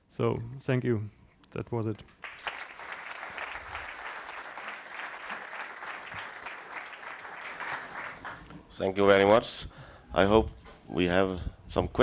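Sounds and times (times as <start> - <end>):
audience clapping: 2.2 - 8.7.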